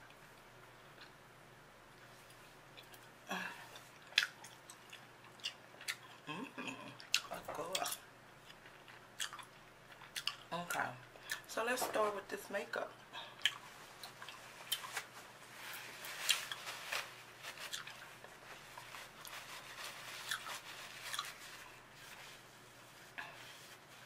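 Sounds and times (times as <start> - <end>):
gum chewing: 2.8 - 11.5, 13.0 - 15.0, 17.6 - 19.3
mouth clicks and smacks: 4.0 - 6.3
wipe rustling: 13.7 - 24.0.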